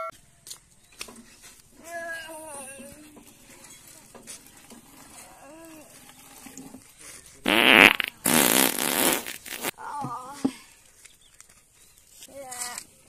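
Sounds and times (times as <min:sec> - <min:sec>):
fart sound: 0:07.5 - 0:09.7.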